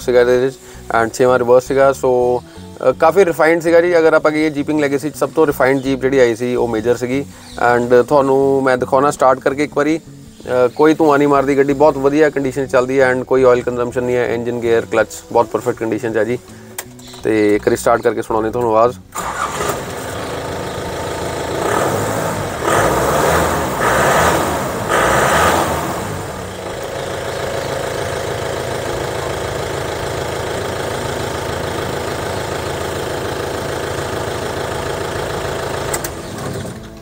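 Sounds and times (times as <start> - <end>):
diesel engine starting and idling: 19.1 - 37.0.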